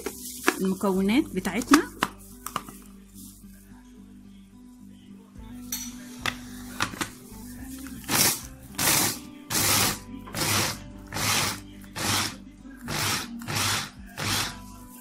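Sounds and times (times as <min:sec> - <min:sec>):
food chopper blades spinning: 0:08.1 - 0:14.6.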